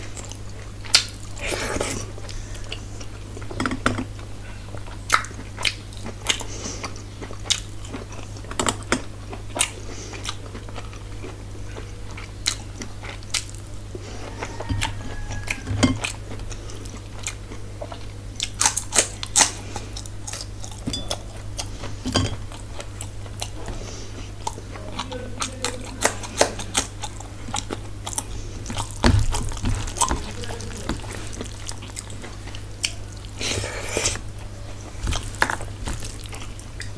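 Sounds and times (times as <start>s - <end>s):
person chewing and biting food: 0.0s - 36.9s
steady low hum: 0.0s - 36.9s
sharp crunches and mouth clicks: 25.8s - 36.9s.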